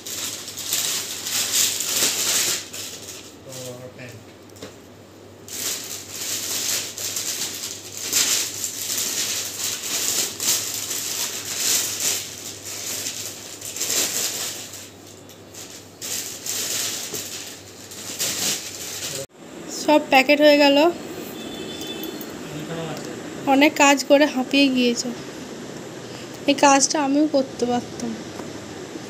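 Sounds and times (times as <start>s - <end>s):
plastic bags rustling: 0.0s - 3.9s, 5.5s - 19.3s.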